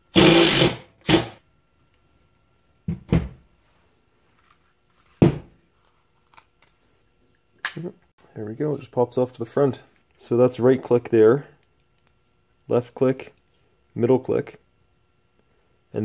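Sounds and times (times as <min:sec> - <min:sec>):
impact driver bursts: 0:00.1 - 0:01.4.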